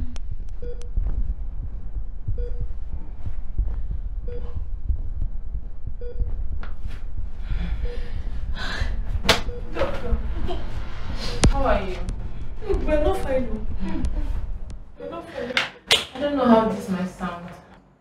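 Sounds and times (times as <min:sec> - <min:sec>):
deep low rumble: 0:00.0 - 0:15.2
patient monitor beeping: 0:00.5 - 0:01.0, 0:02.3 - 0:02.8, 0:04.2 - 0:04.6, 0:05.9 - 0:06.4, 0:09.0 - 0:11.5.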